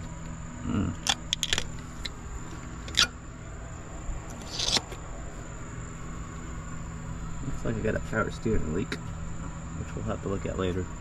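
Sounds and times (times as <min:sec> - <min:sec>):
high insect drone: 0:00.0 - 0:11.0.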